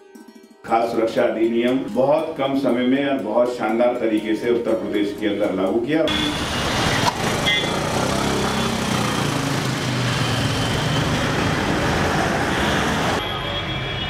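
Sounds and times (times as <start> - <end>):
road noise hiss: 6.1 - 13.2
motorcycle engine passing: 6.3 - 13.2.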